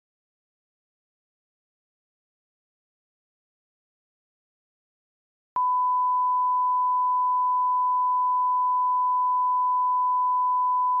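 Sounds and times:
steady test tone beep: 0:05.6 - 0:11.0.

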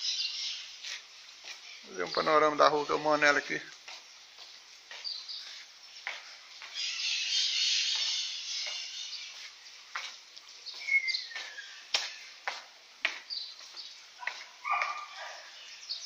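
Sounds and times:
birds chirping and calling: 0:00.0 - 0:16.0
falling bird whistle: 0:06.7 - 0:09.4, 0:10.8 - 0:11.9.

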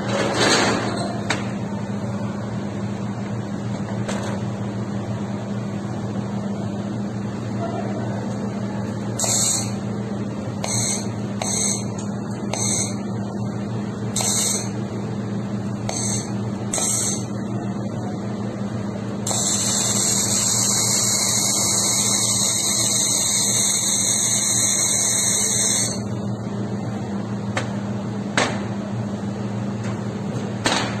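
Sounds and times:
low machine hum: 0:00.0 - 0:31.0
laser welder hissing: 0:09.2 - 0:09.8, 0:15.9 - 0:17.3, 0:19.3 - 0:26.0.

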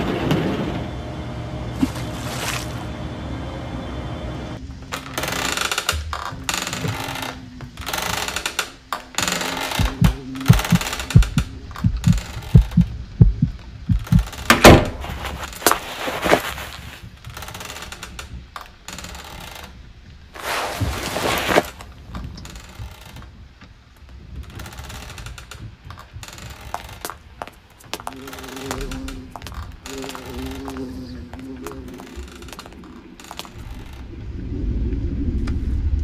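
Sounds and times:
low thuds: 0:09.7 - 0:15.6.

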